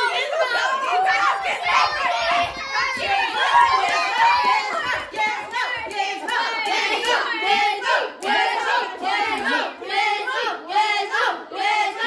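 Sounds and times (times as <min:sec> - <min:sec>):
children cheering in rhythmic chant: 0:00.0 - 0:12.0.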